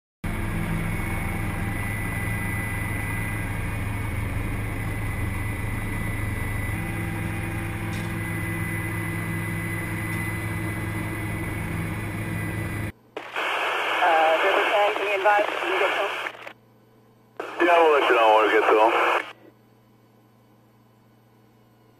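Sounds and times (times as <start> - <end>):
helicopter engine and rotor drone: 0.2 - 13.4, 17.3 - 19.4
radio voice: 13.4 - 16.5, 17.4 - 19.4.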